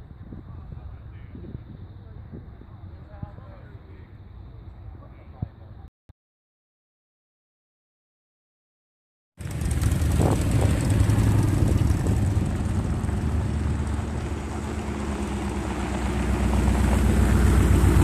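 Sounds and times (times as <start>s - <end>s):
wind buffeting microphone: 0.0s - 3.7s, 9.4s - 18.0s
vehicle engine running: 9.4s - 18.0s.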